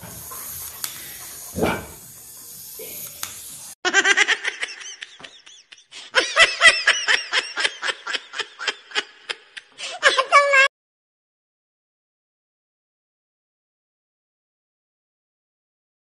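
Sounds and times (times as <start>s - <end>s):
high-pitched laughter: 3.9s - 10.7s.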